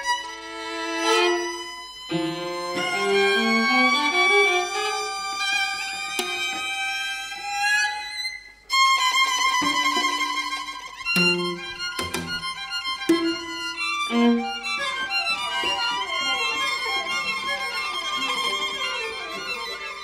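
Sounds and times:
string quartet playing: 0.0s - 20.0s.

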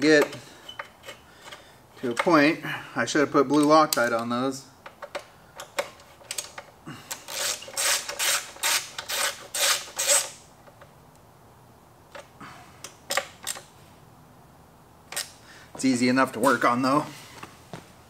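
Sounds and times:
hand ratchet rasping: 4.9s - 10.4s.

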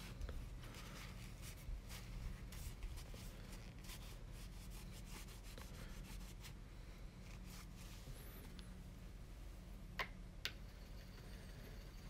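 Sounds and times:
hands scratching and rubbing materials: 0.0s - 6.6s, 7.2s - 8.6s
low steady hum: 0.0s - 12.0s.

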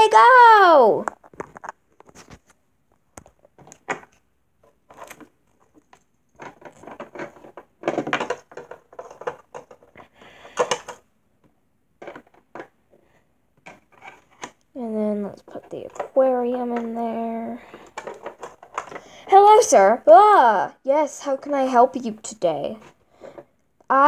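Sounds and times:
plastic toy figures tapping: 5.9s - 11.0s.

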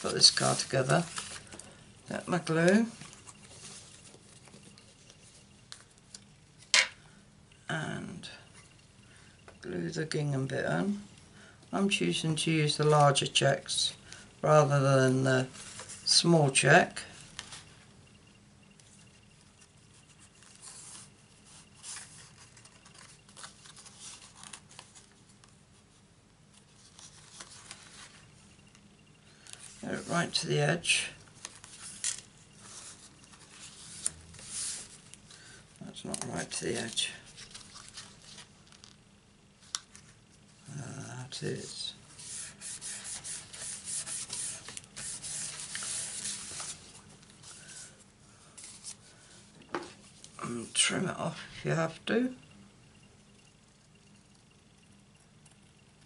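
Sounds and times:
hands smoothing paper: 0.0s - 1.5s, 41.6s - 47.9s
paper rustling and rubbing: 0.0s - 1.6s, 2.2s - 5.9s, 15.5s - 16.2s, 18.9s - 25.9s, 26.7s - 28.3s, 31.4s - 35.1s, 36.2s - 39.0s, 41.6s - 49.3s
low steady hum: 0.0s - 56.0s.

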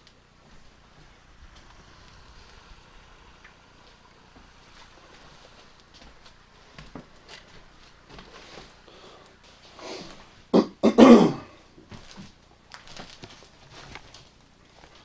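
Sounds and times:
faint footsteps: 0.0s - 10.5s, 11.8s - 15.0s
person coughing: 10.5s - 11.6s
rustling over debris: 11.8s - 15.0s.

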